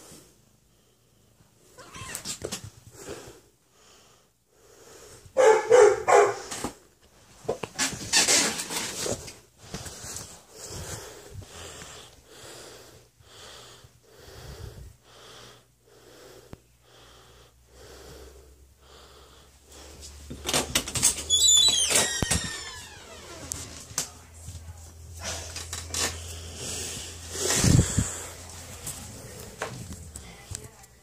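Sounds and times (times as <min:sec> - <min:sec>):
wheezy breathing: 0:02.9 - 0:05.4, 0:09.0 - 0:20.4, 0:25.1 - 0:30.4.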